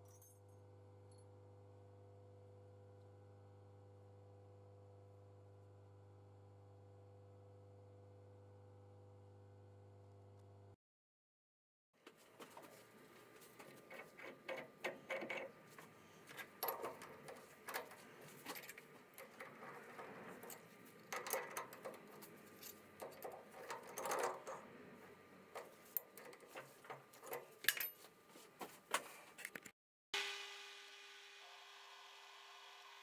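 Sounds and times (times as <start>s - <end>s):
metal tools clinking and knocking: 16.3s - 24.7s, 25.6s - 28.1s.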